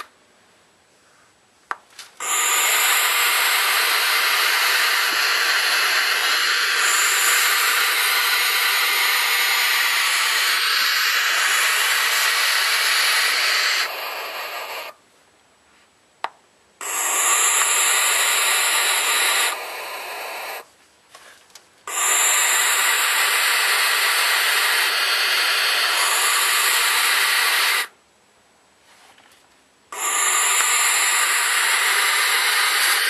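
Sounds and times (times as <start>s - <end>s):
owl chicks hissing: 2.2s - 15.0s, 16.8s - 20.7s, 21.9s - 28.0s, 29.9s - 33.0s.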